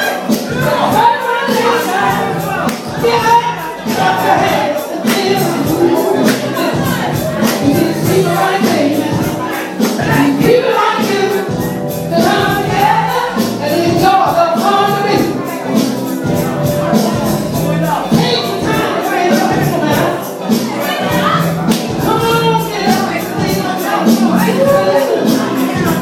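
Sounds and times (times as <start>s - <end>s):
amplified funk music: 0.0s - 26.0s
woman singing into a microphone: 3.0s - 15.5s.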